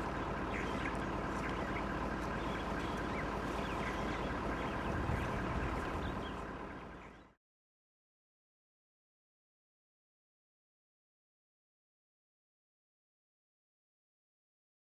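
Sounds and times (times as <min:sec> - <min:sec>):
birds chirping: 0:00.0 - 0:07.4
vehicle engine idling: 0:00.0 - 0:07.4.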